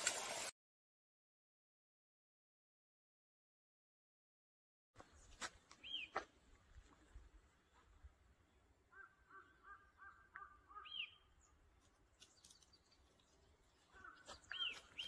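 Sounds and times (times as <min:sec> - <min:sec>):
light scuffs and clicks: 0:05.0 - 0:08.0, 0:11.8 - 0:15.0
faint bird calls: 0:08.8 - 0:11.6, 0:13.8 - 0:15.0.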